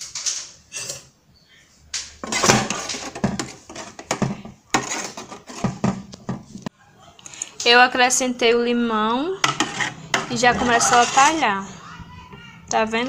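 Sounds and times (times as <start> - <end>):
spoon scraping a metal pot: 0.7 - 1.2, 2.2 - 6.0, 9.4 - 11.8.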